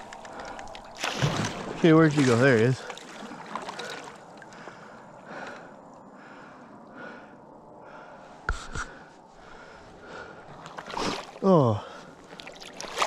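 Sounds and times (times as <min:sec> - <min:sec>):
paddle swishing in water: 0:00.0 - 0:04.4, 0:10.5 - 0:13.0.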